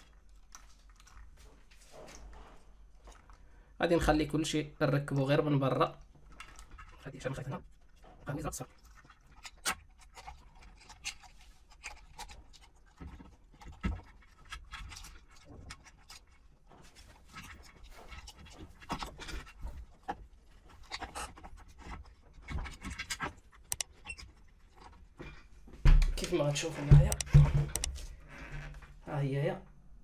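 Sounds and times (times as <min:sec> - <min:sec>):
wire connectors clicking: 0:22.8 - 0:24.2, 0:25.9 - 0:28.1
sharp knock: 0:26.9 - 0:28.0.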